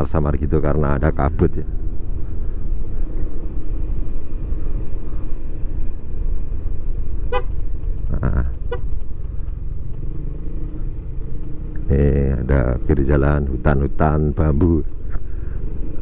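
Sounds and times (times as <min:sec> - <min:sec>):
scooter engine and road rumble: 0:00.0 - 0:16.0
horn toots: 0:07.2 - 0:07.6, 0:08.5 - 0:08.9.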